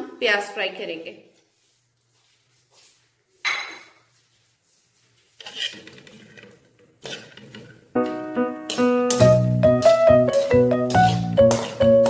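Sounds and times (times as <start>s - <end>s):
metal spatula scraping a pan: 5.3s - 7.8s, 10.3s - 12.0s
background music: 8.0s - 12.0s.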